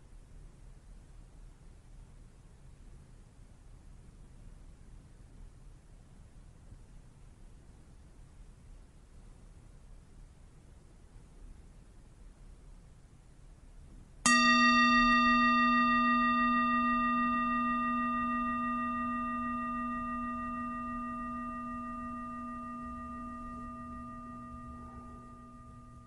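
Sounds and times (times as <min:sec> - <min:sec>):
meditation bell ringing: 0:14.3 - 0:26.0.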